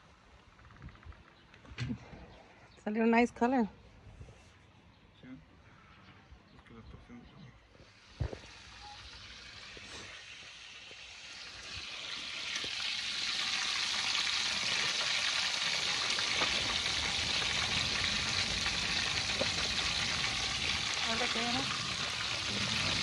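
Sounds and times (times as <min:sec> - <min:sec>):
fish sizzling in hot oil: 0:07.9 - 0:23.0.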